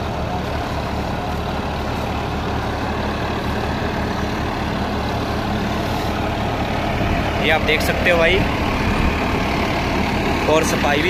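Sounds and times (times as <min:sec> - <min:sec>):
seeder rotor churning soil: 0:00.0 - 0:11.0
tractor diesel engine droning: 0:00.0 - 0:11.0.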